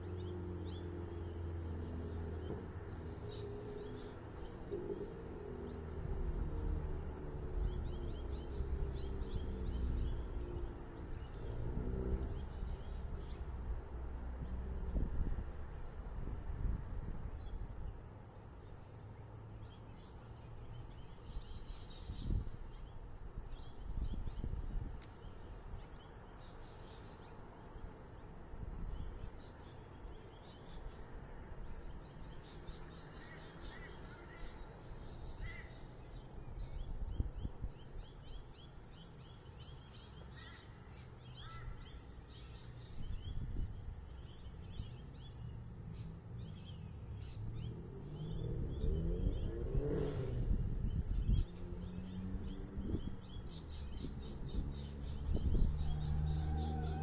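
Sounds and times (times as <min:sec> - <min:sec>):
insect drone: 0:00.0 - 0:57.0
birds calling: 0:28.9 - 0:57.0.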